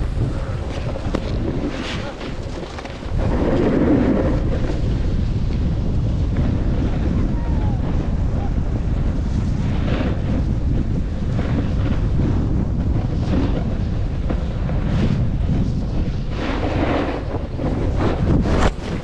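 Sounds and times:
ski edges scraping snow: 0.0s - 5.3s, 15.7s - 19.0s
wind buffeting microphone: 0.0s - 19.0s.

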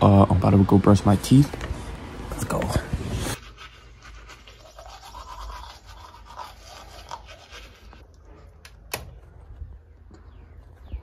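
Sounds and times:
toothbrush scrubbing teeth: 3.3s - 8.0s.

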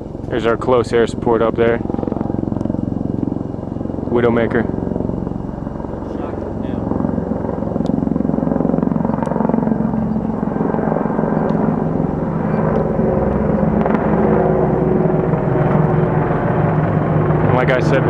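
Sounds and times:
helicopter rotor chopping: 0.0s - 18.0s.

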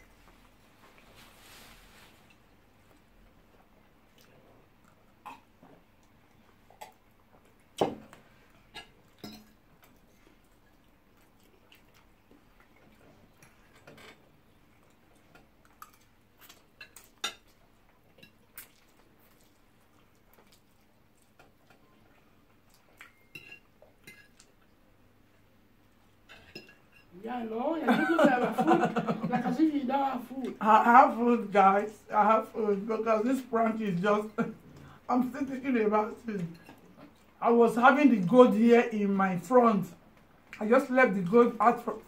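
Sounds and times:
forks clinking on plates: 8.8s - 9.6s.

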